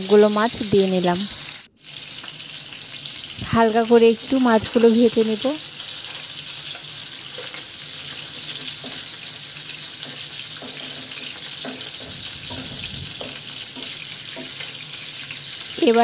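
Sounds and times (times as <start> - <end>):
fish sizzling in oil: 0.0 - 16.0
wooden spatula knocks: 11.6 - 14.6.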